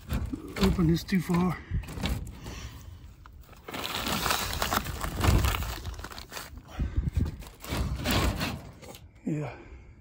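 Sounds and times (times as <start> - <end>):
plastic door panel crinkling: 3.2 - 9.0.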